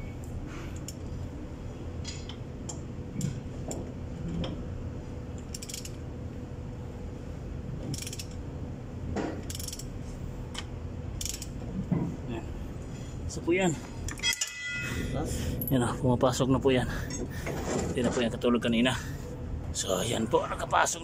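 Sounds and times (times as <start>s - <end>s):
ratchet wrench clicking: 5.4s - 6.0s, 7.9s - 8.4s, 9.4s - 10.0s, 10.6s - 11.6s.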